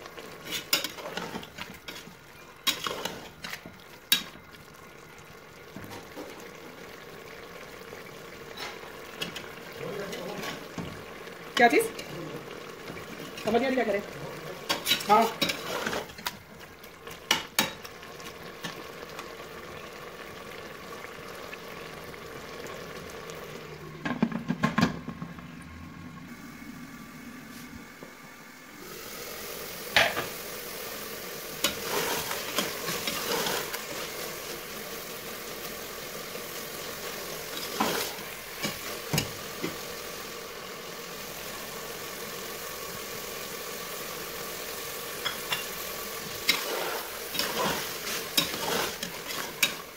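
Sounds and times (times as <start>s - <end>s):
curry sizzling in pot: 0.0s - 49.9s
metal spoon scraping pot: 46.5s - 49.8s.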